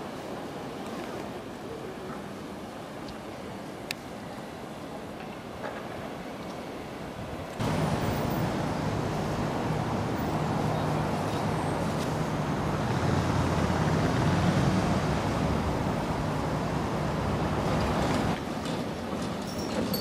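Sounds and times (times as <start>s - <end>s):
city traffic noise: 0.0s - 20.0s
low steady hum: 7.6s - 14.3s.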